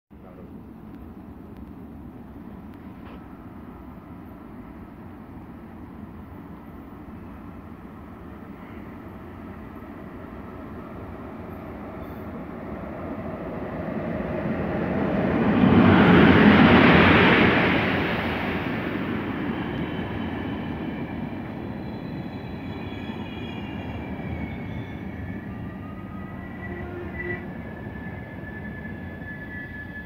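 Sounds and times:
passenger train passing: 0:00.2 - 0:30.0
high wheel squeals: 0:19.6 - 0:30.0.

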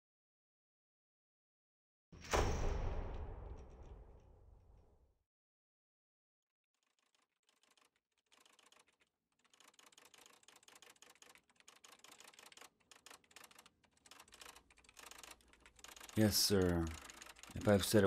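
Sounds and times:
typewriter typing: 0:06.8 - 0:18.0.

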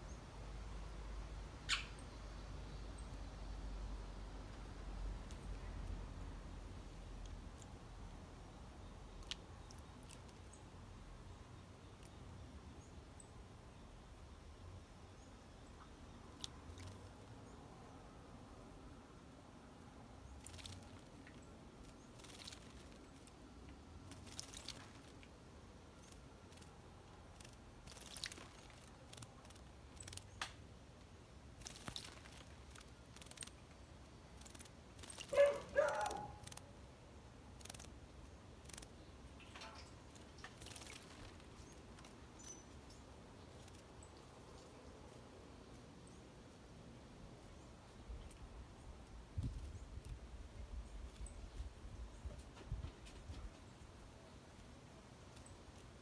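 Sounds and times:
bird splashing in water: 0:20.4 - 0:23.4, 0:24.0 - 0:25.3, 0:27.3 - 0:30.3, 0:31.6 - 0:33.6, 0:34.4 - 0:36.6, 0:38.6 - 0:42.3.

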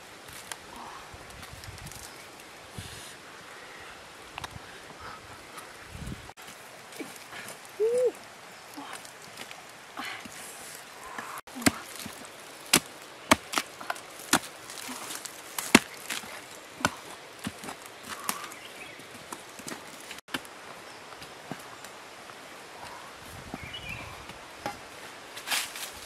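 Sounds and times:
blade chopping into wood: 0:11.6 - 0:17.6.

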